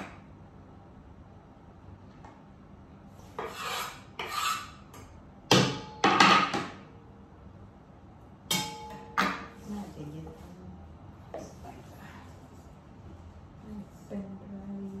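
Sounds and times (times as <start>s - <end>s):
dishes clattering on counter: 5.5s - 6.8s.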